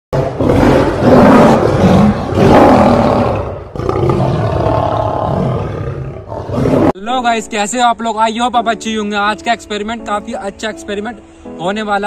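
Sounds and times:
lion roaring: 0:00.2 - 0:07.0.

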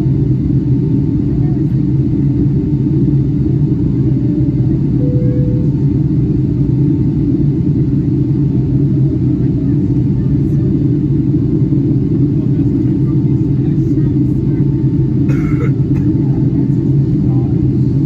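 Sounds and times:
airplane cabin engine rumble: 0:00.0 - 0:18.0.

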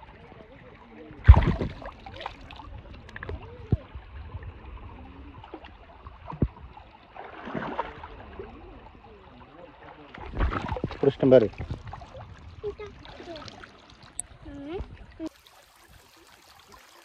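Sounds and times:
water splashing and sloshing: 0:00.0 - 0:17.0
loud sharp splash: 0:01.2 - 0:02.5, 0:07.2 - 0:08.1.

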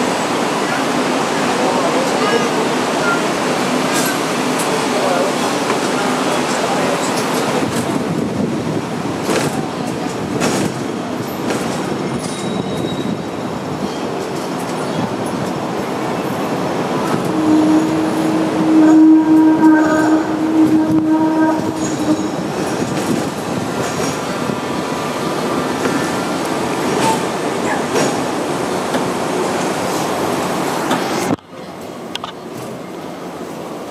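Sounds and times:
tram wheels rumbling and rattling: 0:00.0 - 0:33.9
wheels squealing on rails: 0:10.4 - 0:15.2, 0:17.0 - 0:28.2.

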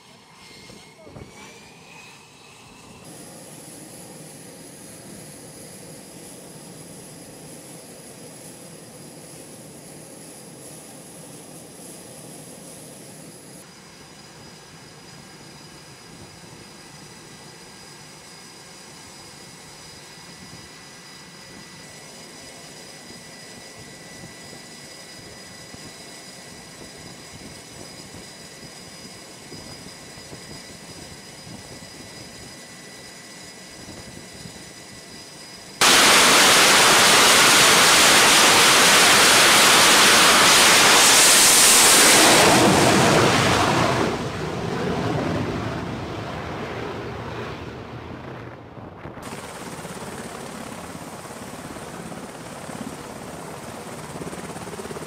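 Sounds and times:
jet engines roaring: 0:00.0 - 0:16.0, 0:30.6 - 0:54.2
helicopter rotor and turbine: 0:00.0 - 0:55.0.

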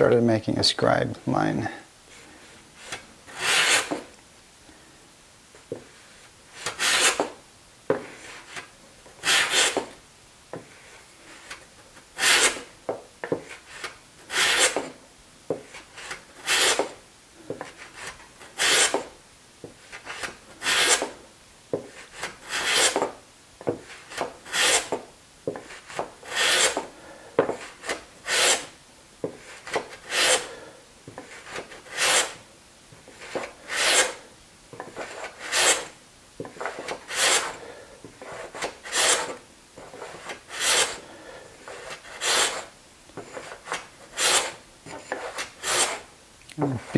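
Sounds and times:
hand plane scraping wood: 0:03.3 - 0:04.1, 0:09.2 - 0:09.9, 0:12.2 - 0:12.7, 0:13.8 - 0:14.9, 0:16.4 - 0:17.0, 0:20.1 - 0:21.2, 0:22.2 - 0:23.1, 0:24.1 - 0:25.0, 0:25.9 - 0:26.9, 0:27.6 - 0:28.7, 0:29.6 - 0:30.5, 0:31.4 - 0:32.4, 0:33.2 - 0:34.2, 0:34.9 - 0:35.9, 0:36.6 - 0:37.6, 0:38.2 - 0:41.0, 0:41.7 - 0:42.7, 0:43.3 - 0:46.0.

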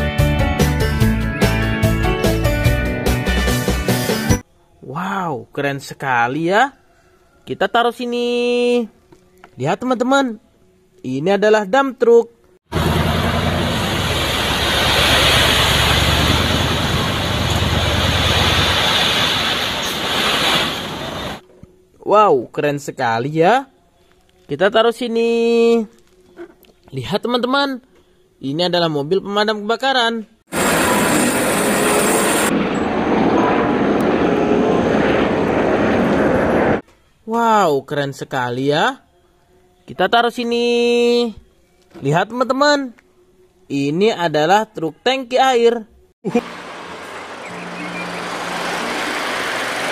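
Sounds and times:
diesel engine running: 0:12.7 - 0:19.3, 0:46.4 - 0:49.9
gravel rushing off truck bed: 0:12.8 - 0:21.4, 0:46.4 - 0:49.9
helicopter rotor whir: 0:30.5 - 0:36.8.

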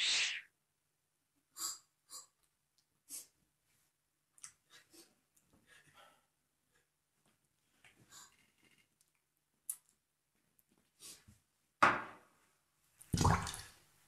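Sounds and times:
quiet breaths: 0:01.5 - 0:09.0.

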